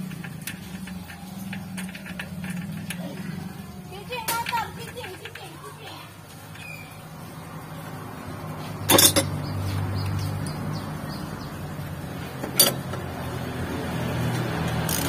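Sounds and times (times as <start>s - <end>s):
metal tools clinking: 0.0s - 5.8s, 8.8s - 9.4s, 12.4s - 13.0s.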